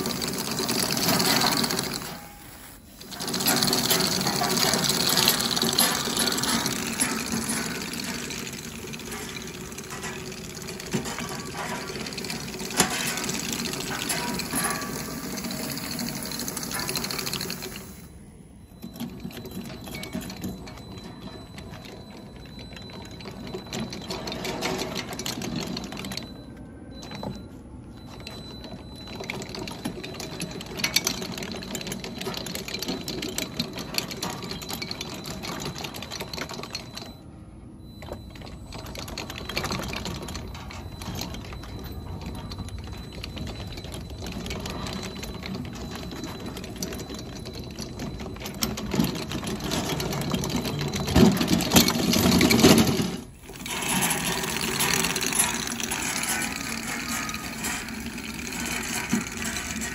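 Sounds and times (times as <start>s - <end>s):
chain tracks clattering: 0.0s - 18.0s, 28.0s - 37.2s, 37.8s - 59.9s
robot motors whirring: 53.3s - 59.9s.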